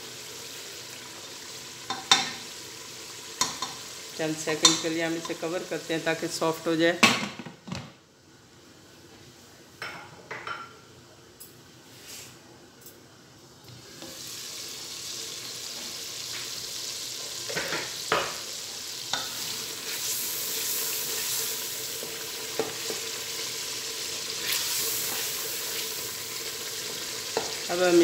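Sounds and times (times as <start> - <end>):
masala sizzling in oil: 0.0 - 6.9, 13.7 - 28.0.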